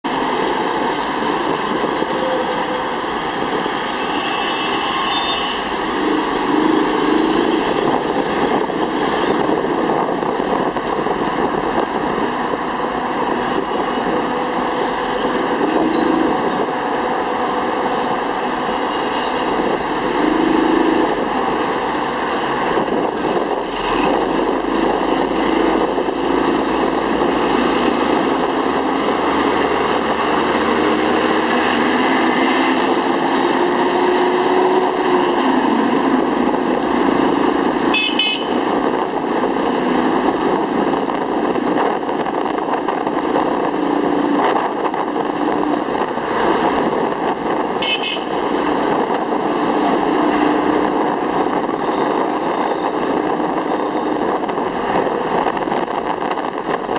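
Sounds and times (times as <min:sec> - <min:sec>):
rumble of buses and cars: 0:00.0 - 0:56.9.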